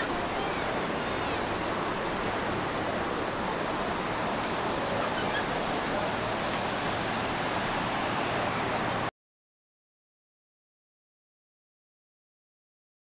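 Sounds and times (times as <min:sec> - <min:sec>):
ocean surf rushing: 0:00.0 - 0:09.1.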